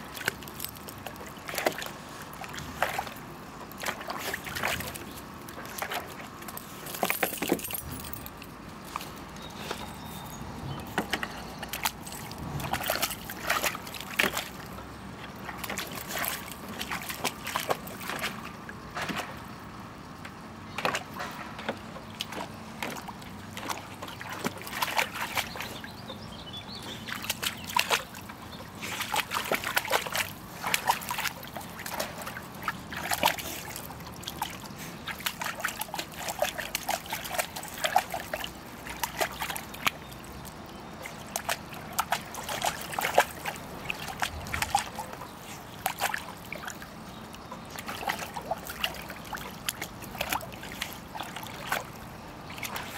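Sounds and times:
water splashing in plastic pool: 0.0 - 10.2, 10.8 - 52.9.

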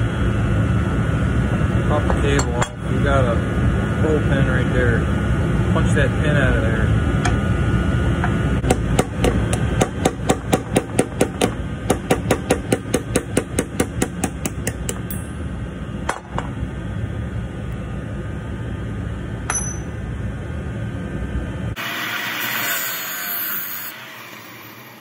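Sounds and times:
hammer striking metal punch: 8.6 - 15.4, 16.1 - 16.5, 19.4 - 20.0.

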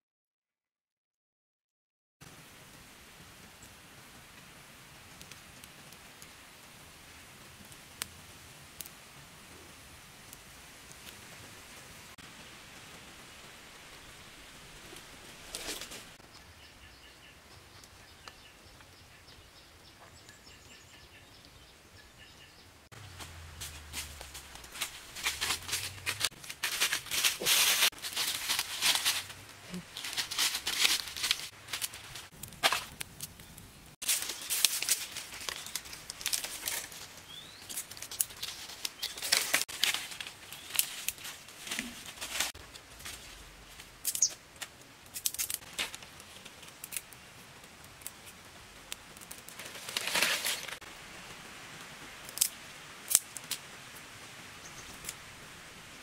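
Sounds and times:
dry leaves and twigs crackling: 12.2 - 19.4, 22.9 - 51.1, 52.0 - 54.0.

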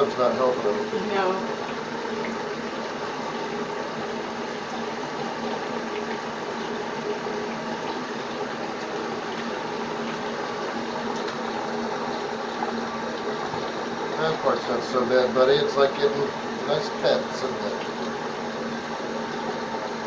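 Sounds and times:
tap water splashing into tub: 1.4 - 14.4.

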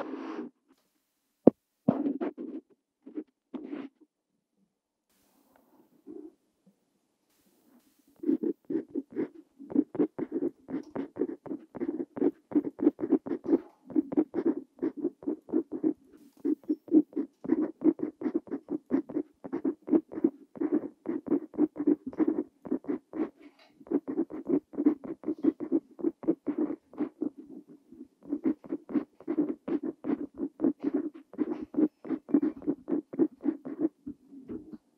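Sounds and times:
pen nib scratching on paper: 8.2 - 34.0.

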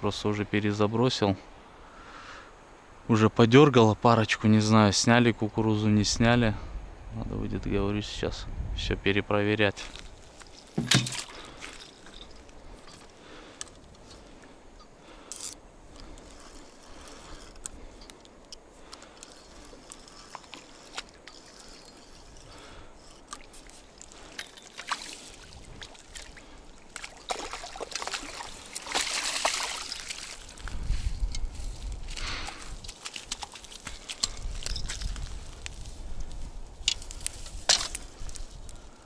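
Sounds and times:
water sloshing: 9.9 - 30.8, 32.2 - 35.3
fish splashing and thrashing: 10.0 - 14.4, 15.0 - 30.8, 32.1 - 35.4.

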